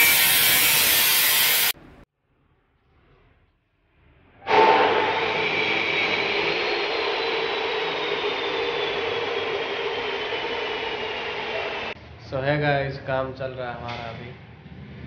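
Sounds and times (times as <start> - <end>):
power tool motor whining: 0.0 - 1.8.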